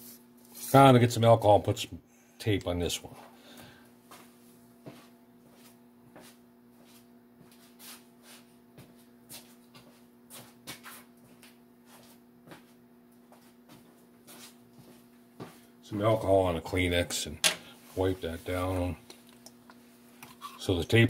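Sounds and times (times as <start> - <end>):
low electrical hum: 0.0 - 21.0
footsteps and handling knocks: 4.0 - 7.8, 8.7 - 16.2.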